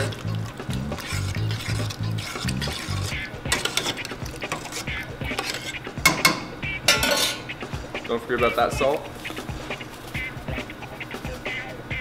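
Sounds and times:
spoon scraping a metal pot: 0.0 - 7.6.

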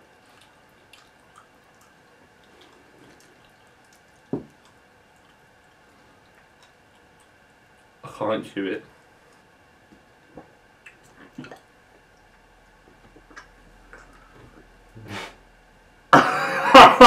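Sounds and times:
mouth clicks of chewing: 13.2 - 14.2
burst of laughter: 16.2 - 17.0.

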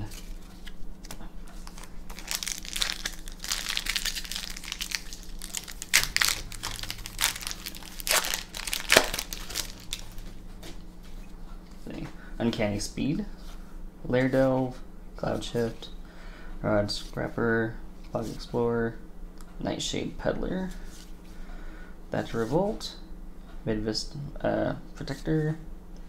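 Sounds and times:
foil wrapper crinkling: 0.0 - 10.3.

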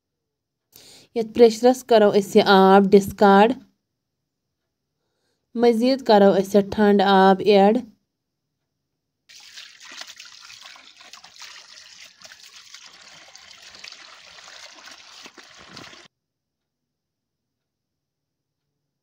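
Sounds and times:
hand rinsing greens splashing: 9.3 - 16.1
tap water running: 9.3 - 16.1.

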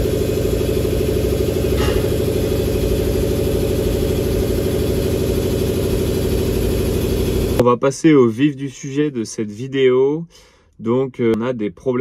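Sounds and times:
motor humming: 0.0 - 7.6
brief high-pitched scrape: 1.8 - 2.2.

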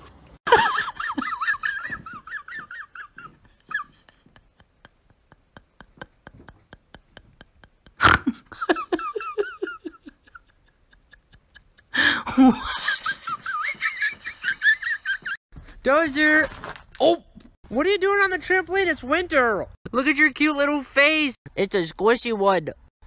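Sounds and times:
person laughing: 0.5 - 15.4.

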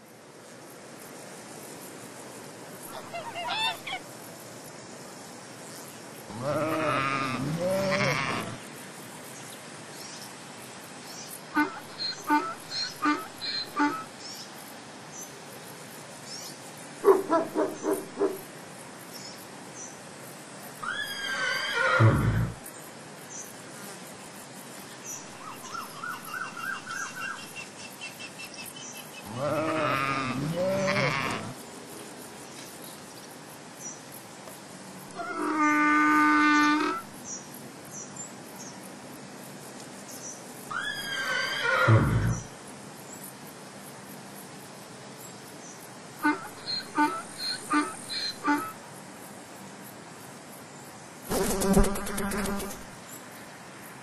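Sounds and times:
zebras calling: 2.9 - 4.0.

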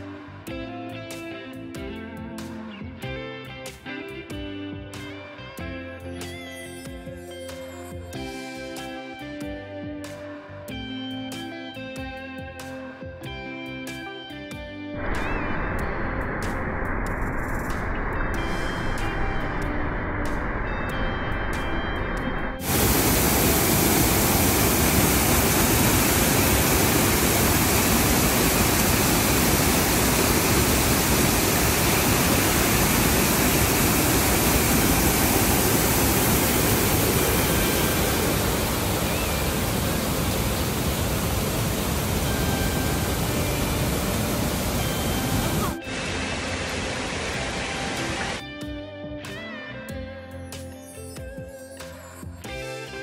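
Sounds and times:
water rushing over rocks: 22.6 - 48.4.

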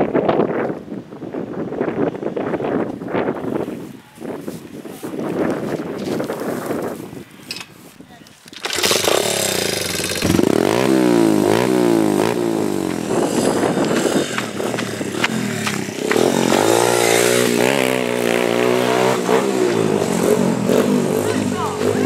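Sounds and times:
pit bike engine revving: 8.5 - 22.0.

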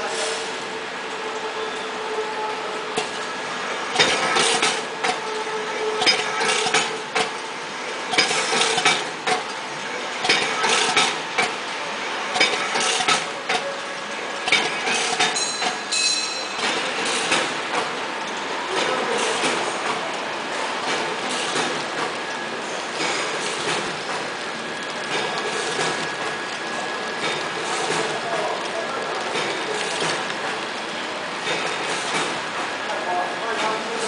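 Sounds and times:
packaging machine hum: 0.0 - 34.0
machine mechanism clacking: 3.9 - 5.3, 6.0 - 7.4, 8.1 - 9.6, 10.2 - 11.6, 12.3 - 13.7, 14.4 - 15.9, 16.6 - 20.2, 31.4 - 33.0.

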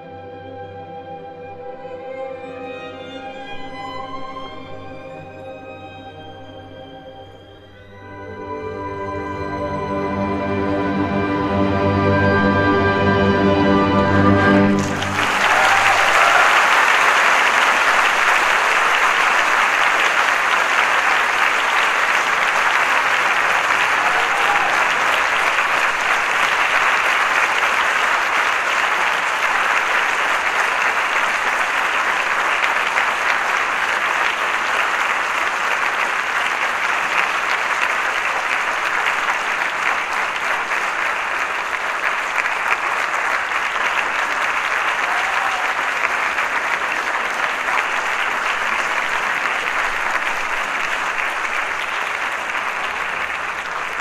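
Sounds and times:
audience applauding: 14.3 - 54.0.

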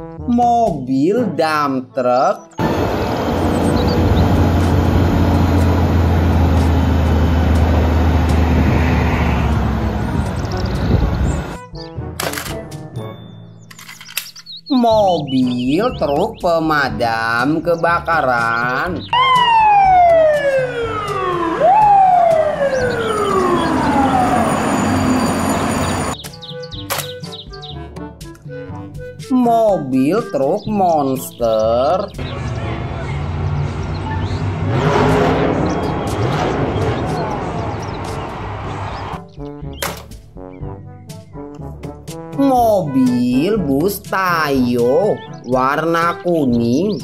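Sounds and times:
diesel truck engine droning: 2.6 - 11.6, 19.2 - 26.2, 32.2 - 39.2
street traffic noise: 2.6 - 11.6, 19.1 - 26.4, 32.1 - 39.3.

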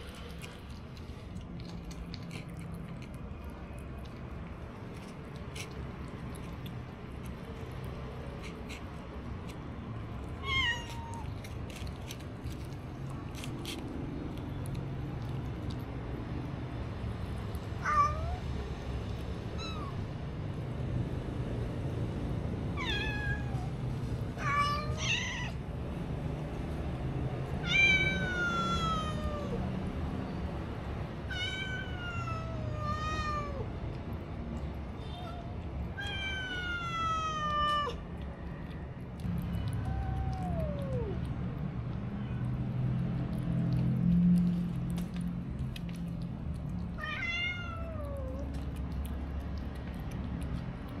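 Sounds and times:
kittens meowing: 27.6 - 29.6, 35.1 - 38.0, 39.6 - 41.3, 46.9 - 48.8.

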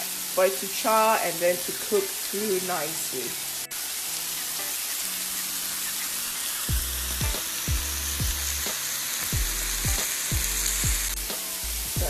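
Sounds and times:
chicken sizzling on a grill: 0.0 - 12.0
music with deep drum beat: 6.7 - 12.0.

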